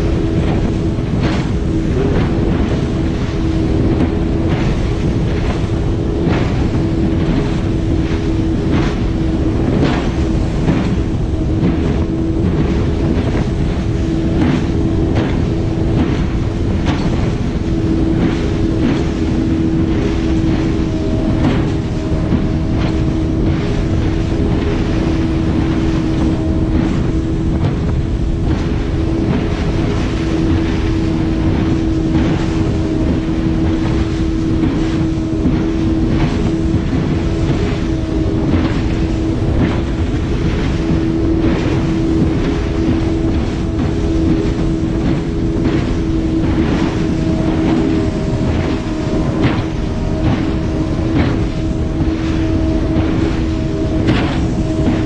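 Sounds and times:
hull slapping against waves: 0.0 - 55.0
speedboat engine high note: 0.0 - 55.0
water and wind noise: 0.0 - 55.0.

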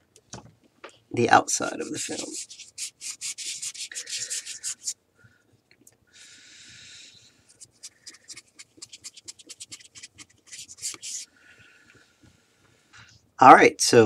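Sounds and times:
cloth rubbing on plastic screen: 1.6 - 5.0, 7.5 - 11.3.

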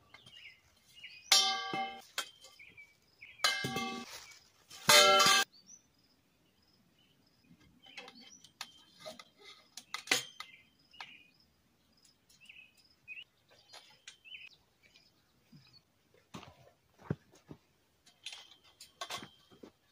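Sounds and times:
small birds chirping: 0.0 - 4.6, 5.4 - 16.3
metal tubes clinking: 1.3 - 2.5, 3.4 - 4.2, 4.8 - 5.5.

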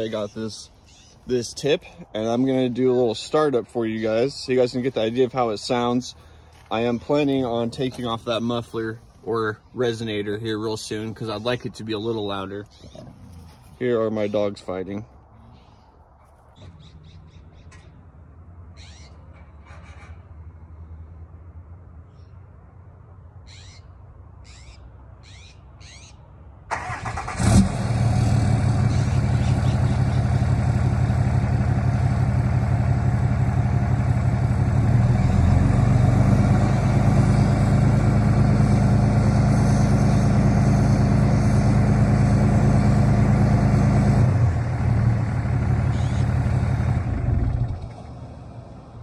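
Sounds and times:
diesel engine idling: 0.0 - 12.8, 26.7 - 49.0.

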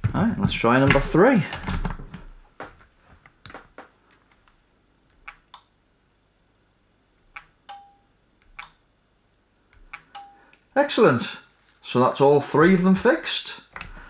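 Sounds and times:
short steady beep: 10.2 - 10.5.

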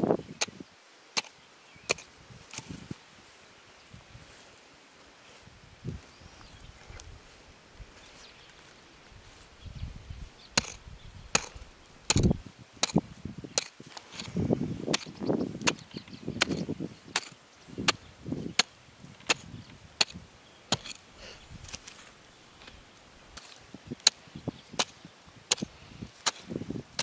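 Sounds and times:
soil crunching and scraping: 1.2 - 3.4, 5.2 - 27.0
digging tool chopping ground: 1.9 - 2.7, 10.6 - 22.0, 22.6 - 27.0.

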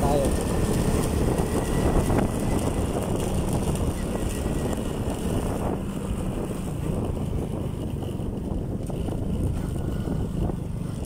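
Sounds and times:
motorcycle engine running: 0.0 - 11.0
wind rushing over microphone: 0.0 - 11.0.

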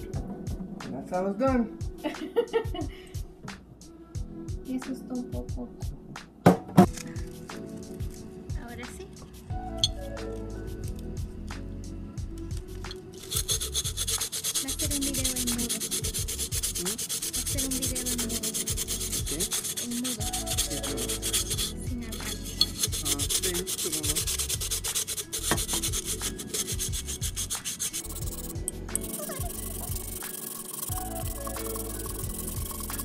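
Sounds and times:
sandpaper scraping glass rim: 13.2 - 33.0.

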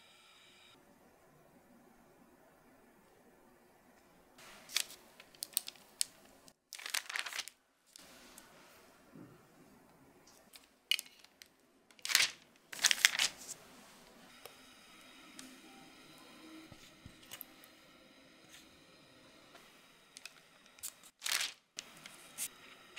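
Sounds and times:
baking paper crinkling: 4.4 - 8.4, 10.3 - 14.2, 20.2 - 22.5.

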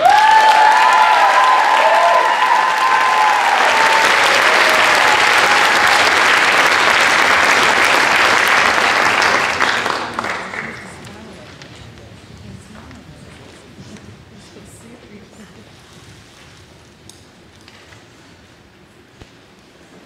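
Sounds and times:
audience cheering: 0.0 - 10.8
audience clapping: 0.0 - 11.8.

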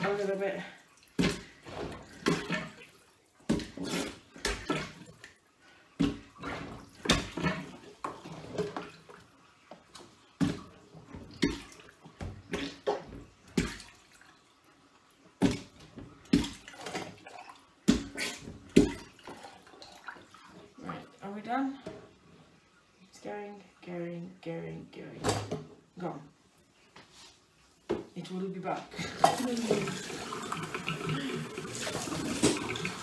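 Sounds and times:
plunger wet slaps and splashes: 1.0 - 5.4, 6.0 - 8.2, 9.9 - 14.1, 15.4 - 20.3.

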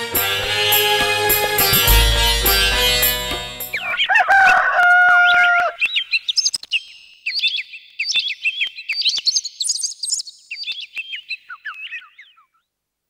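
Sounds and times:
small birds chirping: 5.3 - 12.7.

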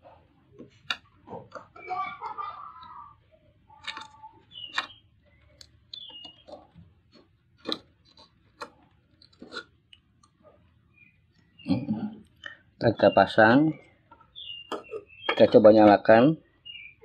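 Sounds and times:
faint plastic squeaks: 3.7 - 9.8, 13.7 - 15.7.

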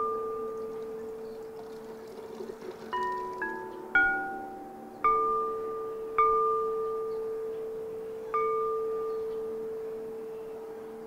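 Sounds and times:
porcelain percussion ringing notes: 0.0 - 11.0.

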